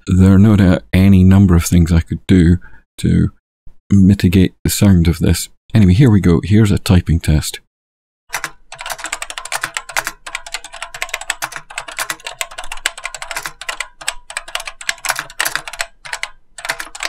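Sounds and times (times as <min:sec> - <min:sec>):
fast typing on mechanical keyboard: 0:08.3 - 0:17.0.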